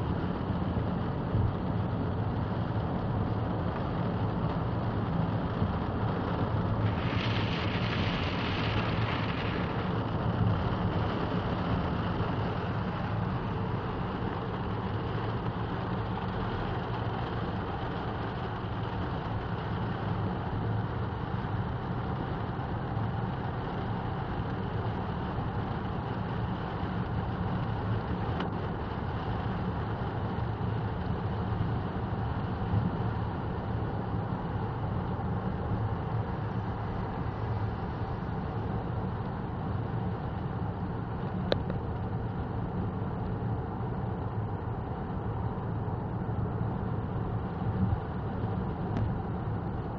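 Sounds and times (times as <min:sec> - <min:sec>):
rain on car: 0:00.0 - 0:49.9
tyres hissing on wet road: 0:01.6 - 0:49.4.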